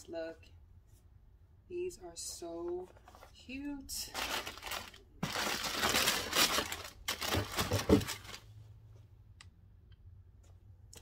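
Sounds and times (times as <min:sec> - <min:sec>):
tissue paper crinkling: 0:04.0 - 0:08.5.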